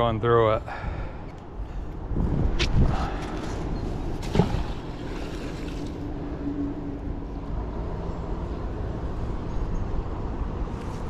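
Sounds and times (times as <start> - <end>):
wind buffeting microphone: 0.7 - 7.2.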